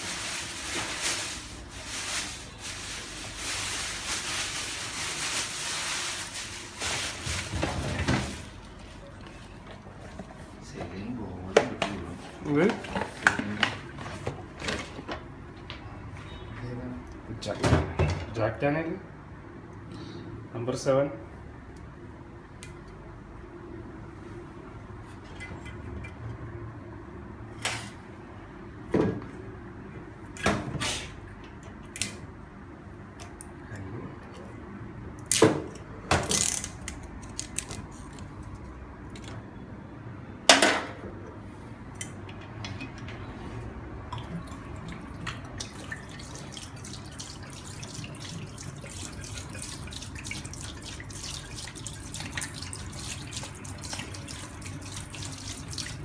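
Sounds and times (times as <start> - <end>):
liquid pouring into sink: 44.1 - 56.0.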